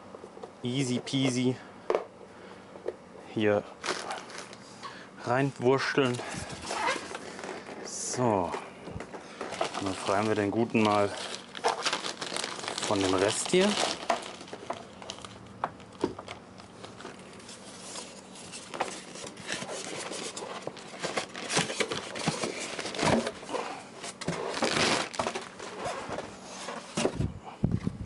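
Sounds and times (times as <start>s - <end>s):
plastic wrap rustling: 3.8s - 4.6s, 5.5s - 27.2s.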